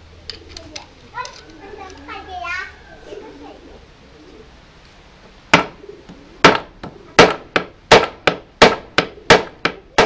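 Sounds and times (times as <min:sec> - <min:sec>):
hammer striking nail into wood: 0:05.6 - 0:05.8, 0:06.4 - 0:10.0.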